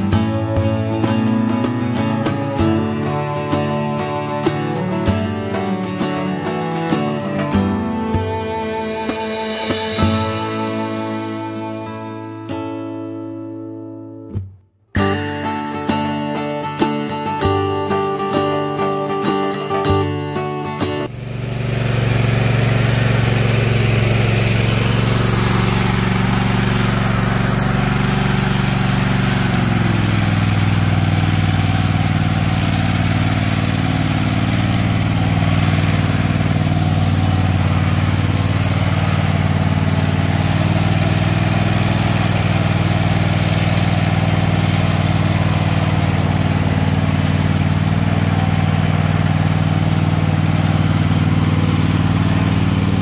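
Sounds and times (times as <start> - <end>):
riding mower engine running: 0.0 - 11.9, 15.0 - 53.0.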